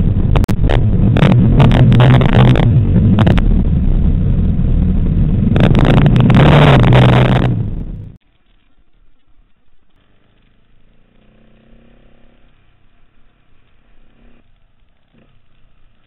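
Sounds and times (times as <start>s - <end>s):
off-road motorcycle engine running: 0.0s - 16.0s.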